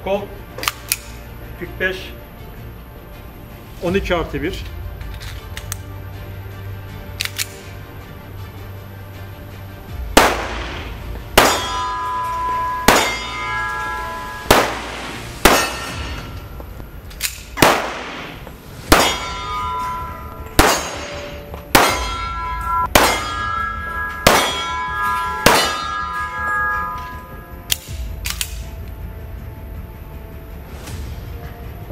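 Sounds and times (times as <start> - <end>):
pistol shots: 10.2 - 12.0, 12.8 - 13.4, 14.4 - 16.2, 17.2 - 19.6, 20.5 - 22.2, 22.9 - 23.4, 24.2 - 24.7, 25.4 - 26.0
short metallic ring: 11.4 - 16.5, 19.0 - 27.9.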